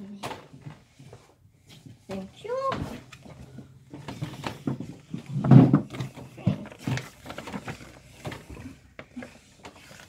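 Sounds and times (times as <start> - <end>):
paper booklet rustling: 2.8 - 10.0.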